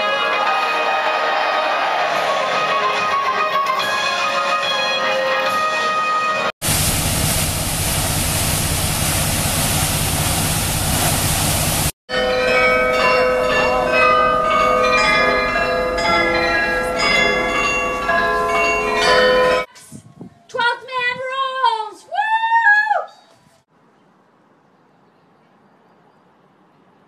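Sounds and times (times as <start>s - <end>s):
glockenspiel bells playing melody: 12.1s - 19.7s.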